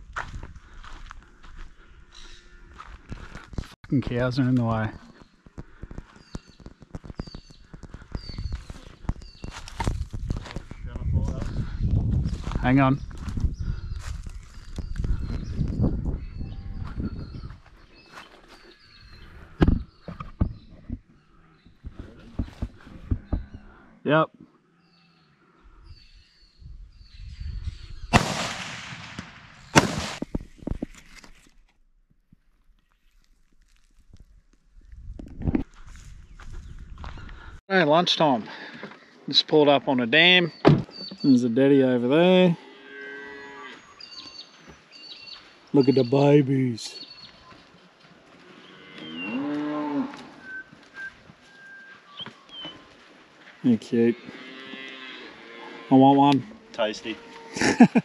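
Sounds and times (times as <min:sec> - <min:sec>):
rifle shots: 0:28.1 - 0:30.2
cow mooing: 0:54.2 - 0:57.6.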